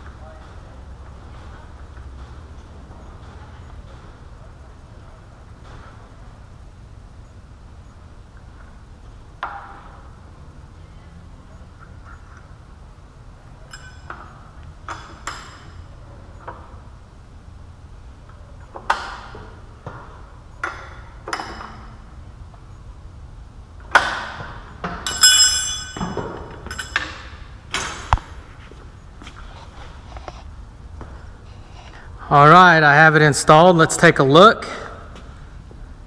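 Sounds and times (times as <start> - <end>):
low steady hum: 0.0 - 36.0
metallic clinks and knocks: 13.6 - 15.8, 24.8 - 28.1.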